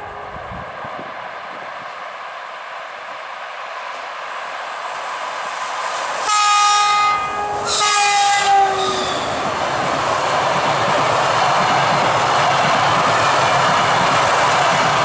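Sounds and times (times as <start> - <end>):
locomotive air horn blasts: 0.0 - 0.6, 6.2 - 9.4
train wheels rushing on rails: 0.0 - 15.0.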